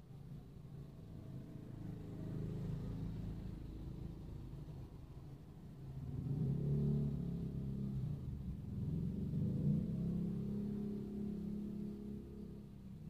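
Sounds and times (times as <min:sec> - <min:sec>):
motorcycle engines passing: 0:05.8 - 0:13.0.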